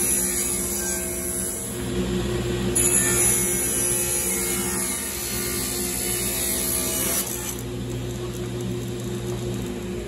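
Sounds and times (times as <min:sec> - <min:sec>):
table saw ripping wood: 0:02.8 - 0:07.7.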